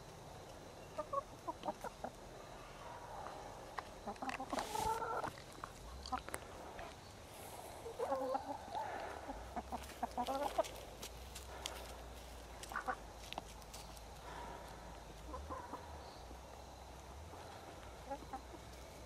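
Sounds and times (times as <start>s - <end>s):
hens clucking softly: 0.8s - 16.6s, 17.3s - 19.0s.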